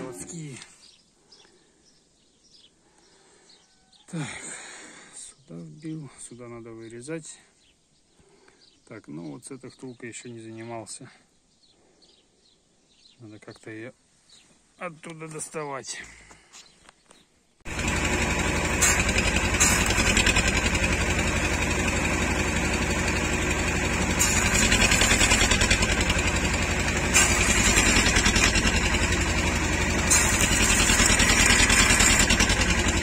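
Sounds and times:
welding arc crackling buzz: 22.1s - 33.0s
welding arc pops: 27.2s - 28.7s, 30.1s - 32.4s.

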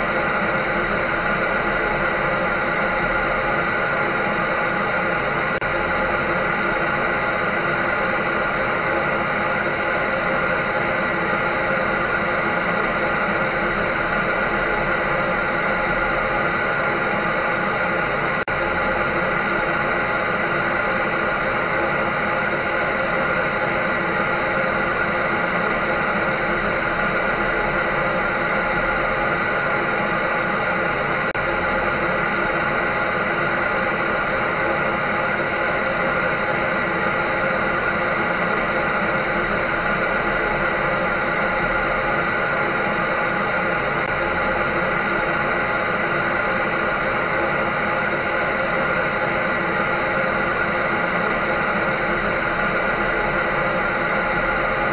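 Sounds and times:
dryer running: 0.0s - 54.9s.

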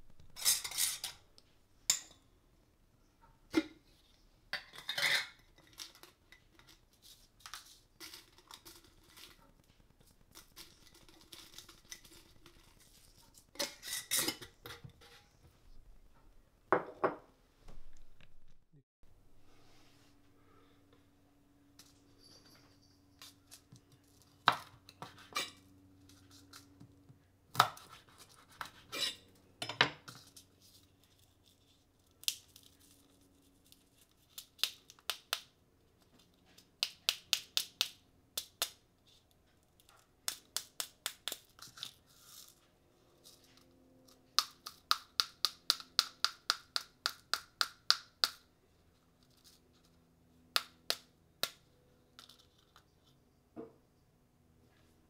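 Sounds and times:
dried chili pods snapping: 32.0s - 35.6s, 36.6s - 38.8s, 39.8s - 42.5s, 44.4s - 48.4s.

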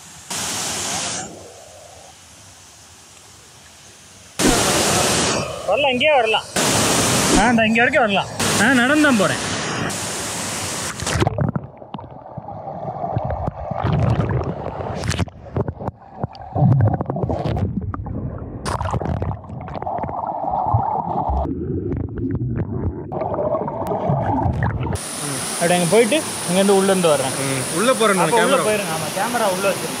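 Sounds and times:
water gurgling and sloshing: 10.6s - 25.3s.

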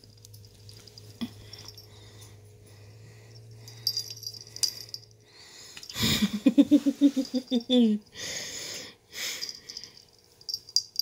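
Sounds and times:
collar clinking: 0.0s - 2.4s, 3.3s - 5.2s, 9.3s - 11.0s.

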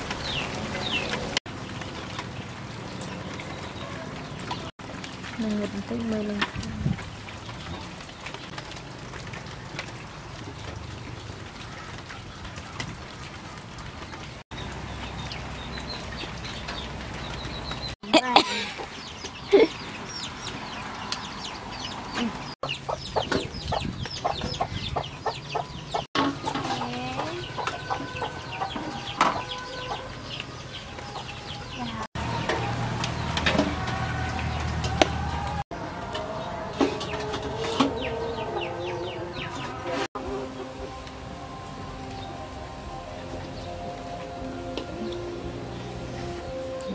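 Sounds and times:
chickens clucking: 15.7s - 41.0s.

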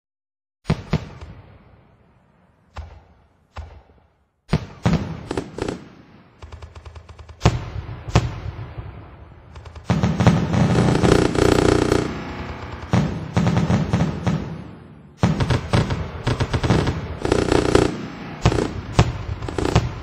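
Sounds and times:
fireworks bangs: 0.6s - 20.0s
fireworks crackling: 4.6s - 20.0s.

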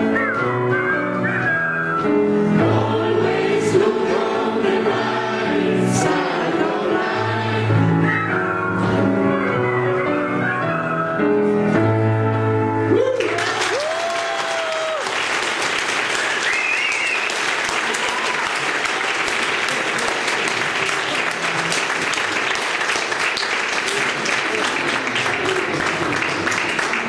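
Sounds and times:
piano and wind instrument: 0.0s - 15.0s, 16.0s - 17.4s
person whooping: 12.9s - 15.1s
audience applauding: 13.0s - 27.0s.

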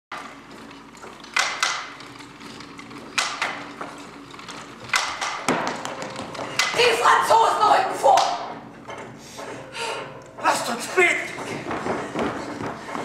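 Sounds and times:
wooden handloom knocking: 0.2s - 6.8s, 11.2s - 13.0s.

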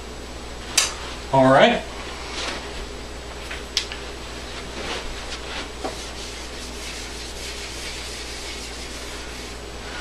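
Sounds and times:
sharp click: 0.8s - 1.0s
eraser rubbing on whiteboard: 5.8s - 9.6s.

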